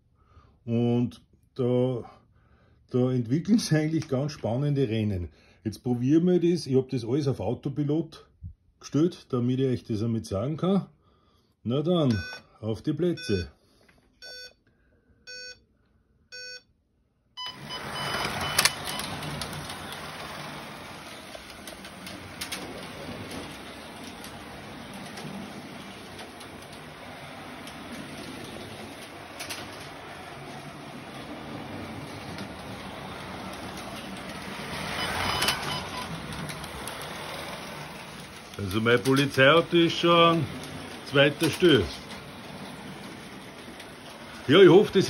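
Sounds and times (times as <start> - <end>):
slot car motors whirring: 17.4 - 45.0
start light beeping: 17.4 - 45.0
clicks: 17.5 - 45.0.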